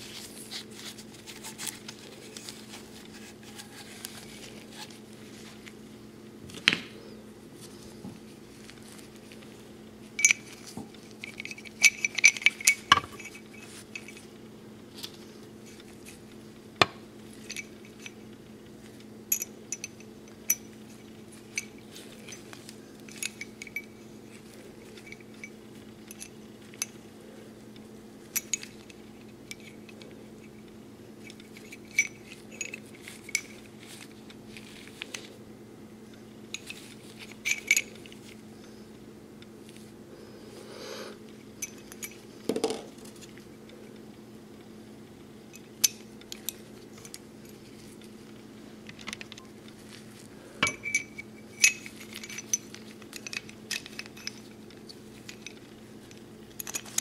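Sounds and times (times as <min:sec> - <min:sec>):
steady low hum: 0:00.0 - 0:57.0
revolver parts clicking: 0:10.1 - 0:14.3, 0:15.0 - 0:27.0, 0:36.1 - 0:38.8, 0:50.6 - 0:57.0.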